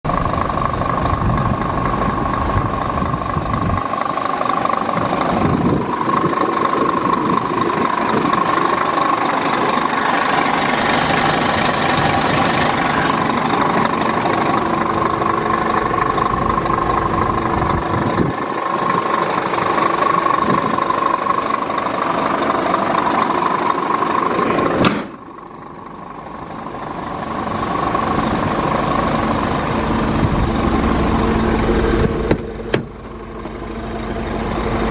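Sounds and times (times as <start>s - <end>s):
truck diesel engine idling: 0.0s - 34.9s
sharp knock: 24.8s - 25.2s.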